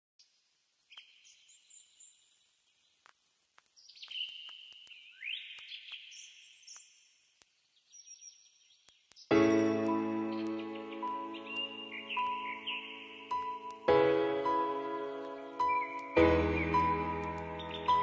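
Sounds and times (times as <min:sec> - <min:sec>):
birds chirping and trilling: 0:00.9 - 0:03.0, 0:03.7 - 0:18.0
faint clicks: 0:03.0 - 0:07.6, 0:08.8 - 0:12.4.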